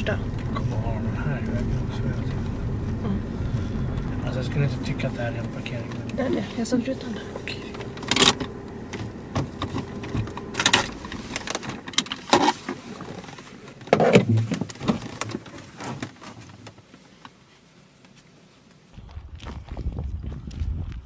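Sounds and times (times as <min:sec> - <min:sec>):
seatbelt clicks and rustling: 0:07.7 - 0:18.2
seatbelt buckle clatter: 0:07.8 - 0:15.6.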